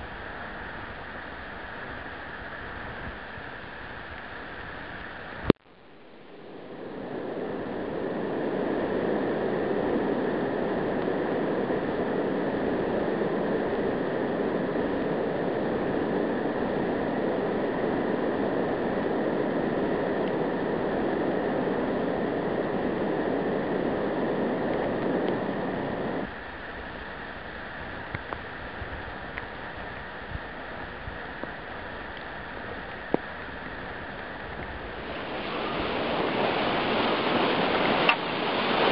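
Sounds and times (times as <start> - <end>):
whitewater rushing: 31.7 - 38.9.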